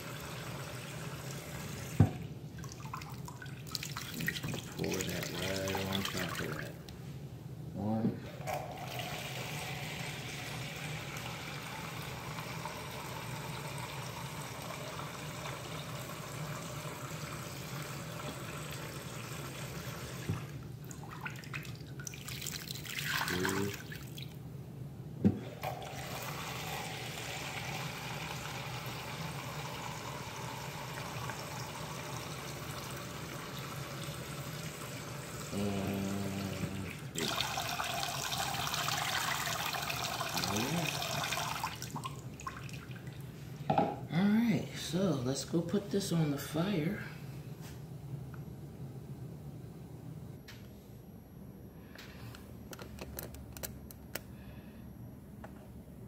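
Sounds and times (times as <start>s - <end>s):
tap water filling cup: 1.8s - 6.6s, 17.8s - 23.8s, 36.6s - 42.9s
water poured into pot: 8.5s - 17.2s, 36.6s - 43.2s.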